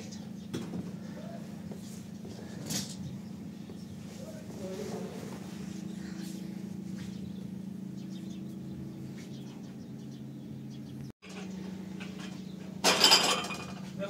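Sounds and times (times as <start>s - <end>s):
low electrical hum: 0.0s - 14.0s
metal tea tray clattering: 12.8s - 13.8s.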